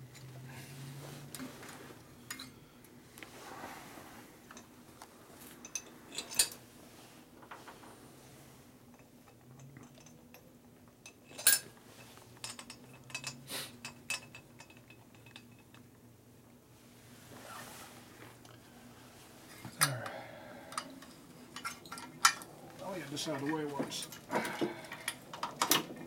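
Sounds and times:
metal tools clinking: 11.0s - 15.8s, 20.7s - 24.3s.

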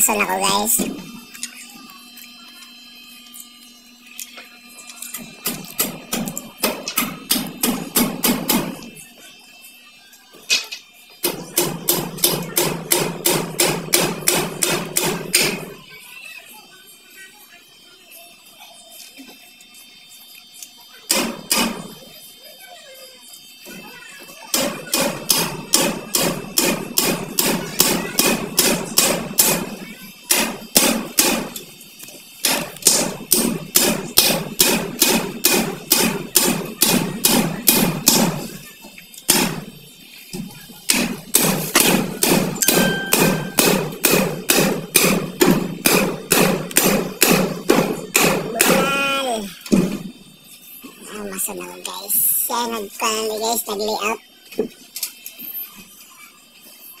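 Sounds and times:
hammer driving nails into wood: 40.9s - 48.8s.

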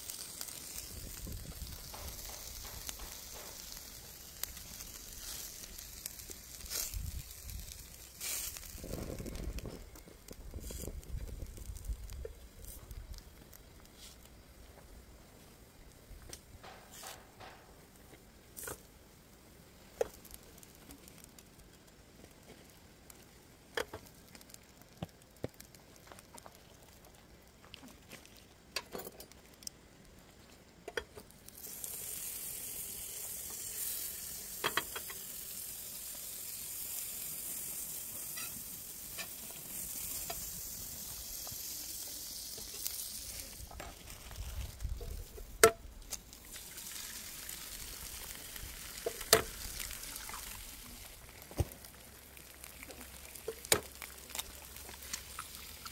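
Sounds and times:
butter sizzling in pan: 0.0s - 14.9s, 19.7s - 28.8s, 31.0s - 55.9s
fork scraping frying pan: 38.3s - 38.6s.

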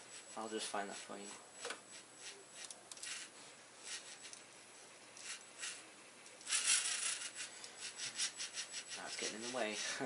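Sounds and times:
handling noise scraping and rubbing: 6.5s - 10.0s.

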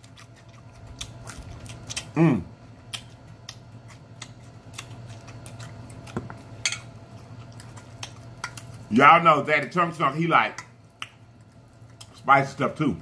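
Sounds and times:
chewing and lip-smacking: 0.0s - 8.9s, 10.6s - 12.6s
person humming mmm: 2.0s - 2.6s.

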